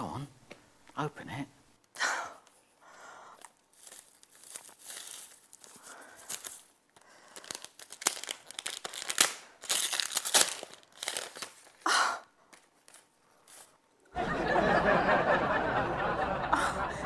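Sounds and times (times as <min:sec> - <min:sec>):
wrapping paper tearing and crumpling: 0:03.4 - 0:14.0.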